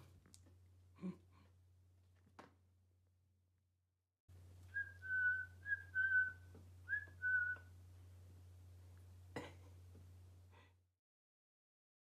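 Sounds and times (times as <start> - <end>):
person whistling: 4.7 - 7.7.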